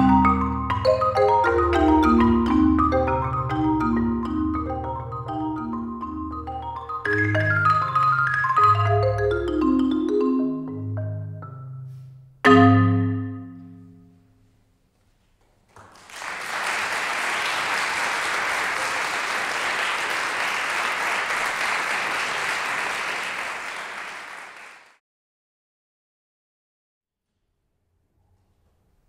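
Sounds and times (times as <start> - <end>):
marimba ensemble playing: 0.0 - 14.0
audience applause: 15.7 - 25.0.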